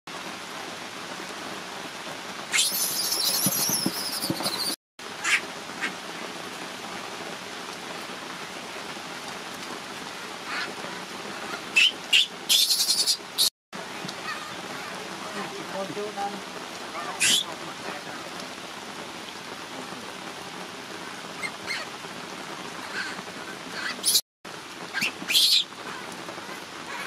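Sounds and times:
steady rain: 0:00.1 - 0:27.0
baby monkey screaming: 0:02.5 - 0:06.0, 0:10.5 - 0:10.7, 0:11.3 - 0:13.5, 0:14.2 - 0:15.0, 0:16.9 - 0:17.5, 0:21.4 - 0:21.9, 0:22.8 - 0:24.2, 0:24.9 - 0:26.1.

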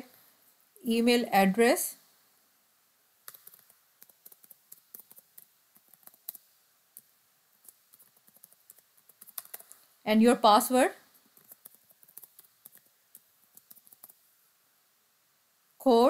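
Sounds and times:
typing on computer keyboard: 0:03.2 - 0:09.8, 0:11.4 - 0:14.2.

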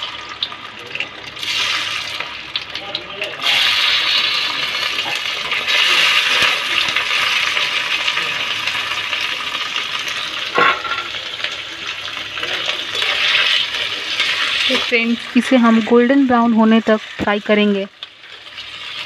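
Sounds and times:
mushrooms sizzling in hot oil: 0:00.0 - 0:19.0.

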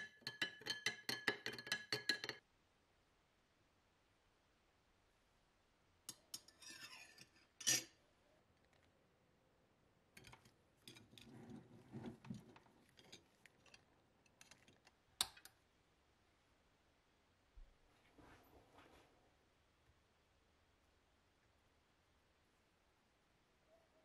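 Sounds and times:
soft handling noises: 0:10.2 - 0:15.0, 0:17.6 - 0:19.4.

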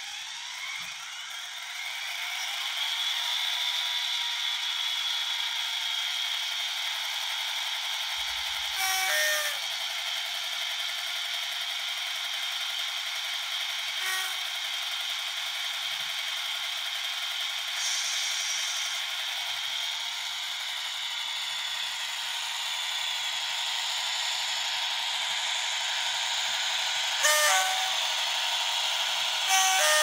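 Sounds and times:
model locomotive engine sound: 0:00.0 - 0:30.0
short tone sounds: 0:27.2 - 0:28.0.

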